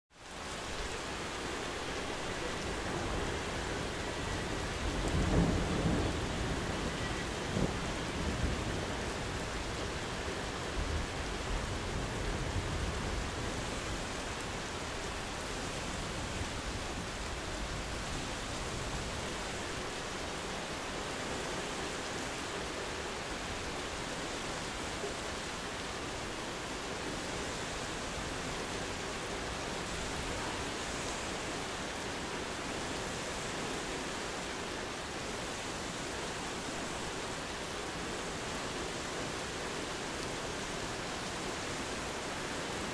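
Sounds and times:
rain hissing: 0.2s - 42.9s
distant thunder rumbling: 2.3s - 13.4s.

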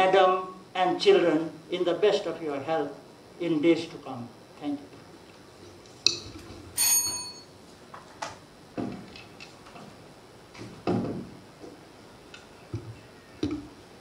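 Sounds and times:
brief high ring: 6.8s - 7.5s.

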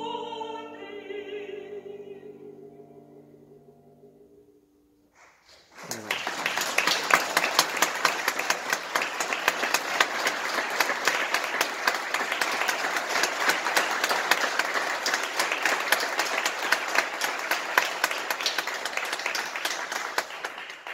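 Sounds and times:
audience applauding: 5.5s - 20.9s.

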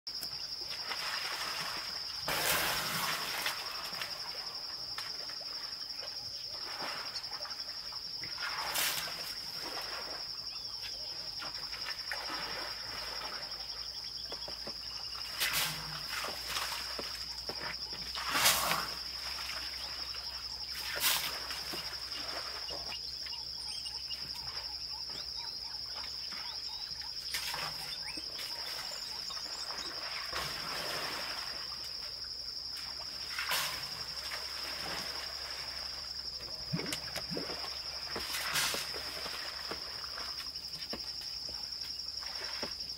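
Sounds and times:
elephant trunk splashing water: 0.7s - 5.5s, 18.1s - 22.9s, 32.8s - 40.6s.

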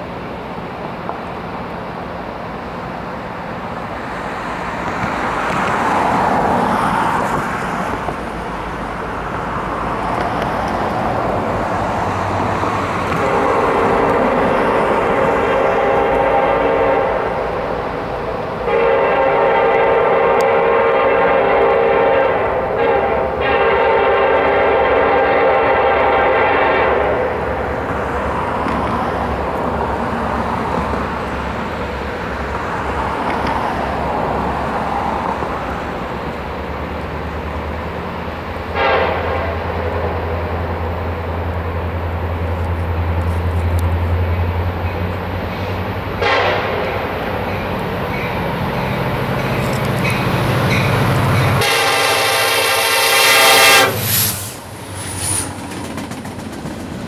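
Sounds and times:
locomotive air horn: 13.1s - 17.7s, 18.6s - 27.4s, 38.7s - 39.9s, 46.2s - 47.1s, 51.5s - 55.4s.

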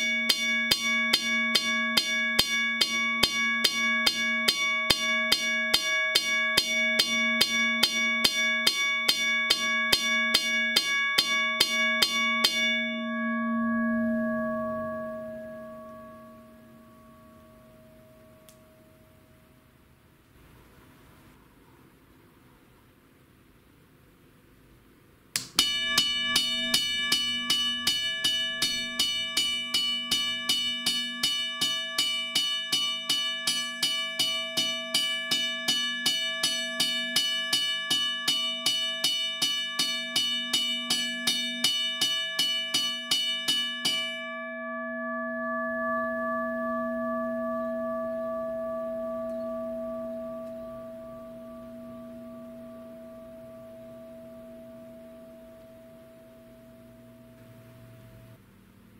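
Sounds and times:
gong ringing hum: 0.0s - 19.5s, 25.6s - 58.4s
railroad crossing bell ringing: 25.6s - 57.8s.

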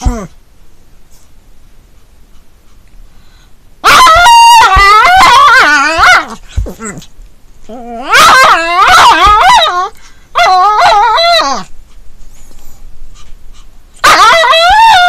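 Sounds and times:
dog whine-howling: 3.8s - 6.4s, 7.7s - 11.7s, 14.0s - 15.0s.

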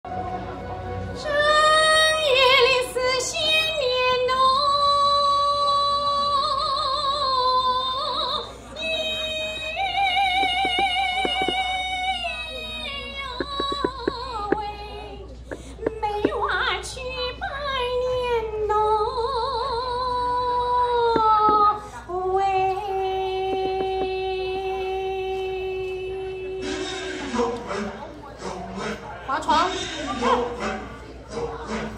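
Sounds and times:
woman singing: 1.2s - 26.6s.

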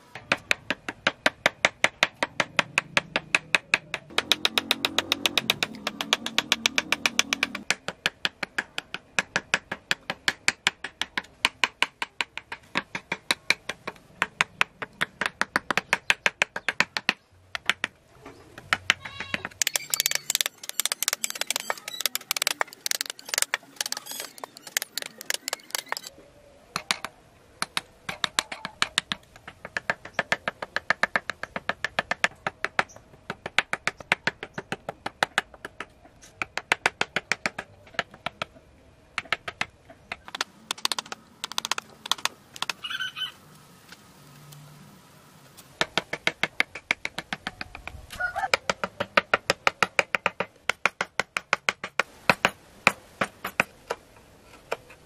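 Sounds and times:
hammer tapping chisel into wood: 0.4s - 17.9s, 18.6s - 26.1s, 40.2s - 42.8s.

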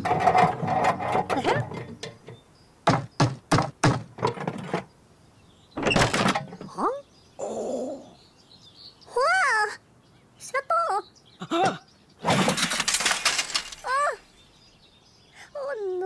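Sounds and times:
cartoon sharp knocks: 2.8s - 4.4s.

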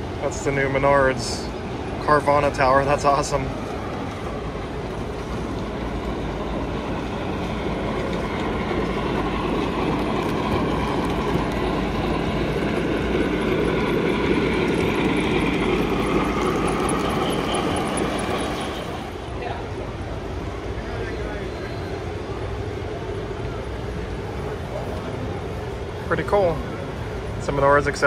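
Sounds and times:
model train rolling rumble: 0.0s - 19.4s.

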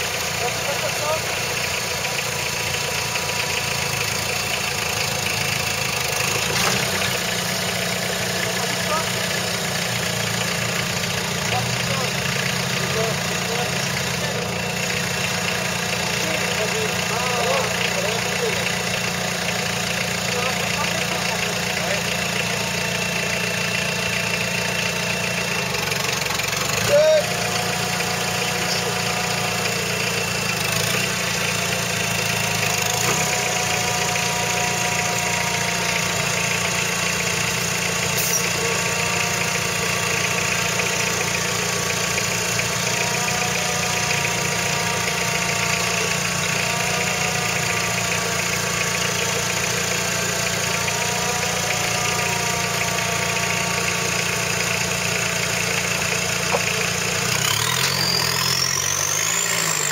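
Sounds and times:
car engine idling: 0.0s - 59.9s.

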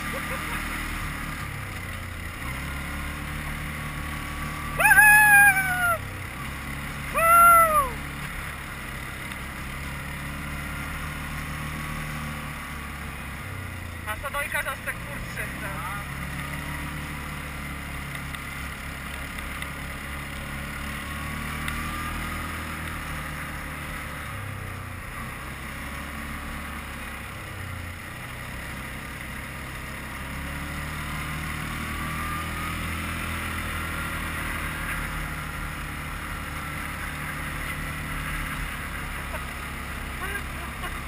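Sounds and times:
quad bike engine running: 0.0s - 41.0s.

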